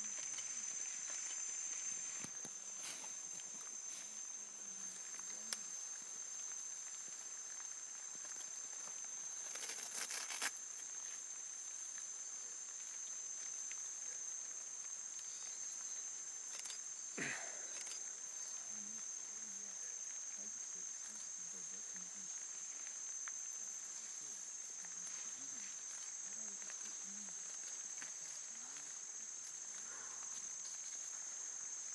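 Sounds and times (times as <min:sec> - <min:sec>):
rustling: 0:00.0 - 0:12.0.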